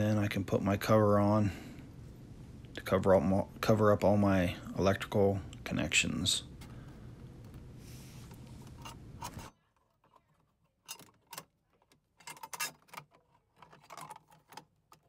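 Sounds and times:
low steady background hum: 0:00.0 - 0:15.0
screwdriver clicks and scrapes on metal: 0:08.6 - 0:15.0.

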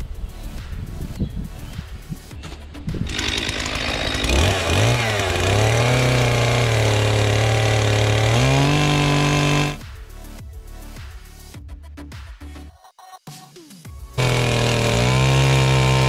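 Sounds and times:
chainsaw running: 0:03.0 - 0:09.8, 0:14.2 - 0:16.0.

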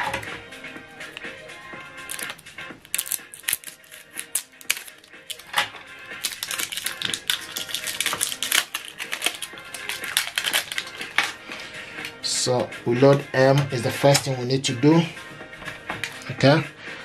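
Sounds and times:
background music: 0:00.0 - 0:17.0
plastic clicks and crackles: 0:02.1 - 0:11.4.

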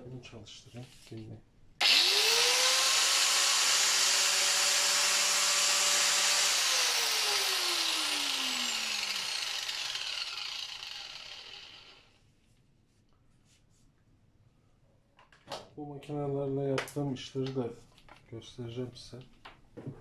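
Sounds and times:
angle grinder whining: 0:01.8 - 0:12.1.

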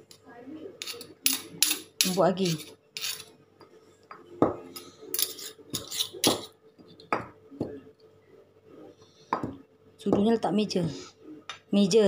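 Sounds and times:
metal spoon clinking: 0:00.8 - 0:03.3, 0:05.1 - 0:06.5.

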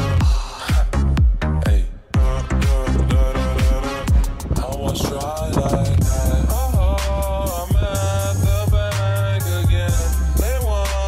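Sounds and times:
electronic dance music: 0:00.0 - 0:11.0
noisy whoosh: 0:02.4 - 0:11.0.

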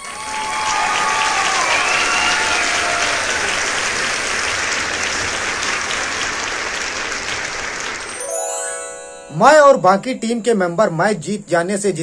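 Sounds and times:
crowd cheering: 0:00.0 - 0:03.8, 0:08.0 - 0:09.3
crowd clapping: 0:00.0 - 0:08.9.

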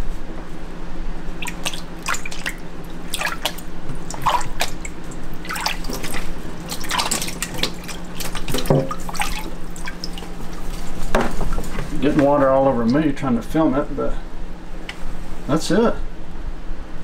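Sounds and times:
water sloshing and splashing in basin: 0:01.3 - 0:12.6.

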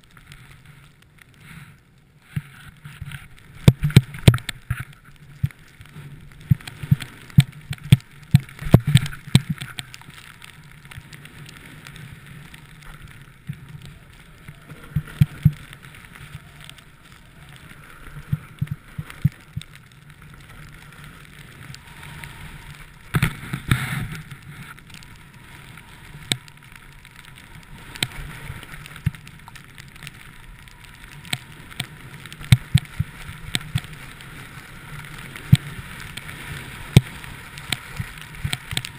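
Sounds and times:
sliding through powder snow: 0:08.1 - 0:38.9.

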